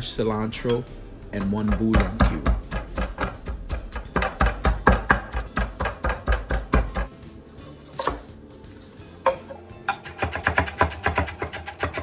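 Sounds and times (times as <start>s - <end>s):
pestle pounding in stone mortar: 1.2s - 7.2s, 9.3s - 12.0s
knife chopping on wooden board: 1.4s - 7.1s, 9.3s - 12.0s.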